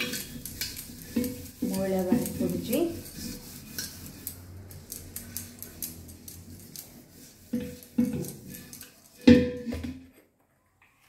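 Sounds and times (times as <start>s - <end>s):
hand scrubbing copper pot: 0.0s - 10.0s
pot knocking with metallic ring: 7.6s - 10.0s.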